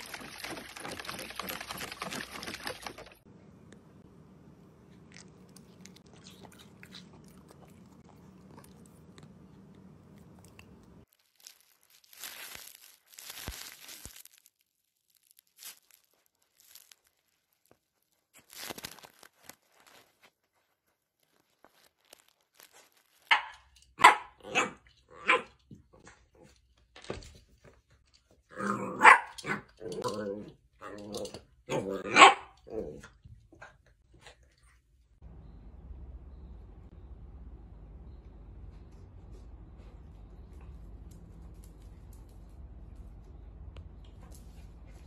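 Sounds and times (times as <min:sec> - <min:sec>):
dog barking: 0:23.3 - 0:25.6, 0:28.8 - 0:29.6, 0:32.0 - 0:32.6.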